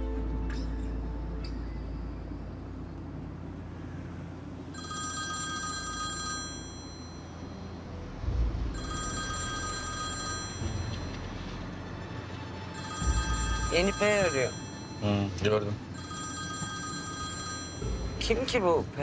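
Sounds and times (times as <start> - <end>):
low steady rumble: 0.0 - 19.0
electronic phone ringtone: 4.7 - 7.7, 8.7 - 11.2, 12.4 - 18.2.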